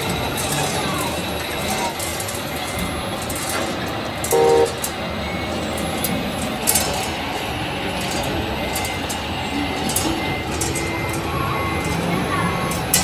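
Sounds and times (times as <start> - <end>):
steady background noise: 0.0 - 13.0
short horn toot: 4.3 - 4.8.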